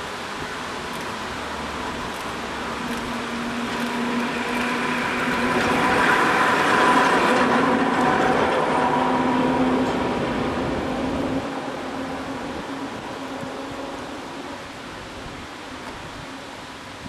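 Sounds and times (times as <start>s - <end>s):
tram wheels rumbling on rails: 0.0s - 16.8s.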